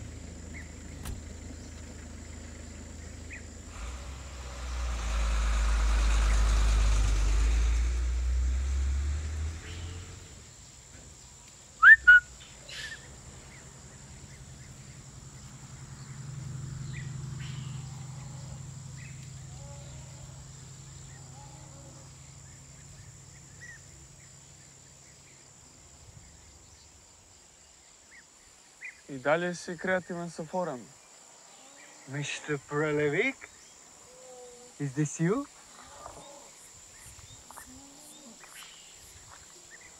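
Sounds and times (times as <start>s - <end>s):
rising whistles: 3.9s - 10.3s, 11.8s - 13.1s
bird chirps: 11.8s - 16.2s, 16.8s - 18.0s.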